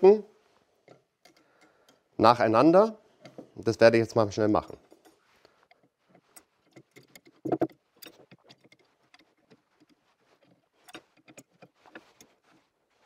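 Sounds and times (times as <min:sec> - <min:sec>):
steel rods clinking: 0:04.4 - 0:12.8.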